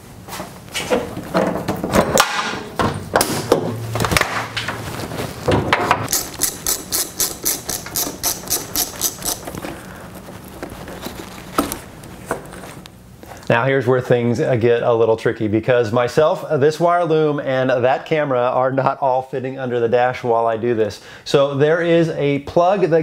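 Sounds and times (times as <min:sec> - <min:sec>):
ratchet wrench clicking: 0:06.1 - 0:09.6.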